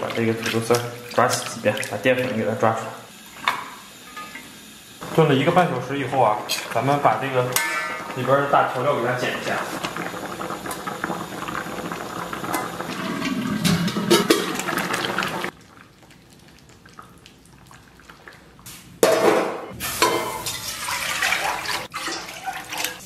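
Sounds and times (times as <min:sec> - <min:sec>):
water poured into wok splashing: 0:00.0 - 0:03.5, 0:06.2 - 0:16.7, 0:19.9 - 0:23.0
pot bubbling: 0:00.0 - 0:23.0.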